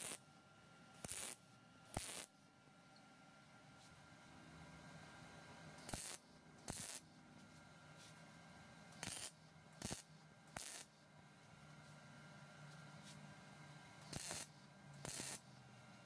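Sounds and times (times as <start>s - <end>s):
welder arc crackle: 0.0s - 0.2s, 1.0s - 2.4s, 5.8s - 7.2s, 9.0s - 11.0s, 14.0s - 15.5s.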